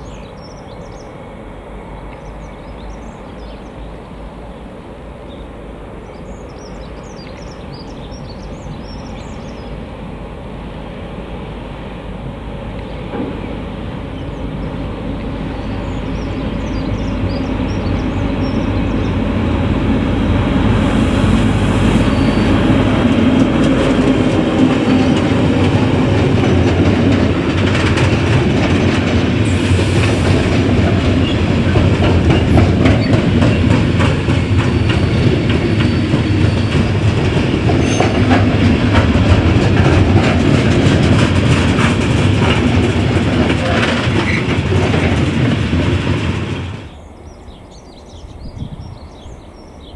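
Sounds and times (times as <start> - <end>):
diesel locomotive engine rumble: 0.0 - 49.9
train wheels clickety-clack: 12.2 - 47.0.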